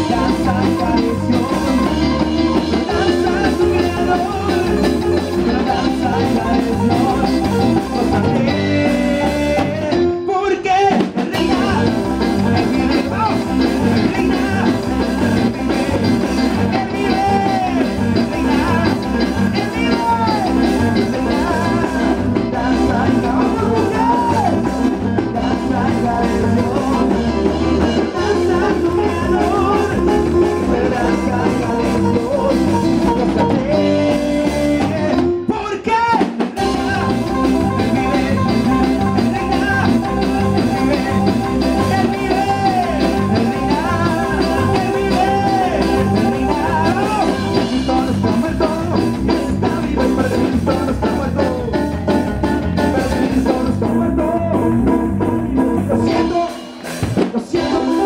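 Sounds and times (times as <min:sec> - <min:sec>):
drum kit beat: 0:00.0 - 0:10.2, 0:10.8 - 0:58.0
electric guitar: 0:00.0 - 0:58.0
keyboard: 0:00.0 - 0:58.0.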